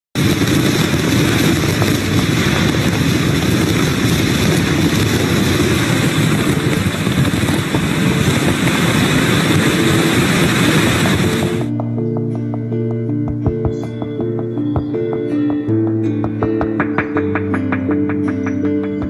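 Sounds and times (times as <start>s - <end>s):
strong wind blowing: 0.2s - 12.3s.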